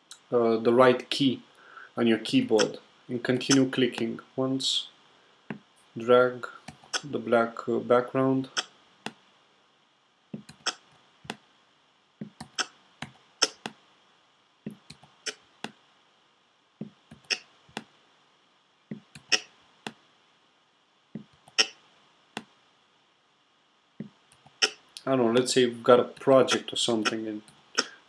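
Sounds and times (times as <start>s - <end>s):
keyboard and trackpad clicks: 10.4s - 11.4s.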